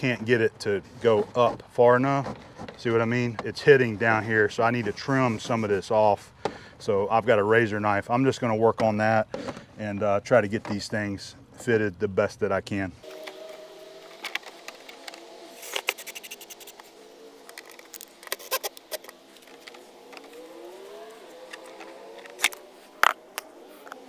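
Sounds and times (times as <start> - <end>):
drill motor hum: 13.0 - 24.0.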